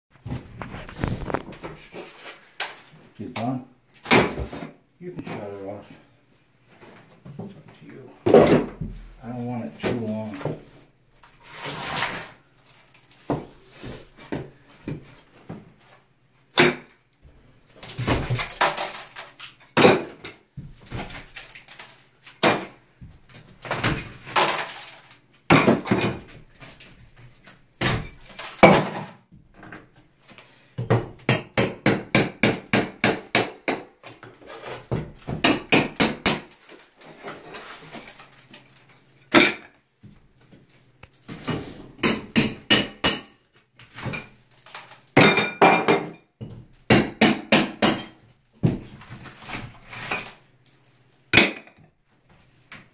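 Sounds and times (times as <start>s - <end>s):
tiles and plaster breaking: 17.8s - 22.8s, 23.4s - 29.2s, 30.8s - 39.7s, 41.4s - 51.9s.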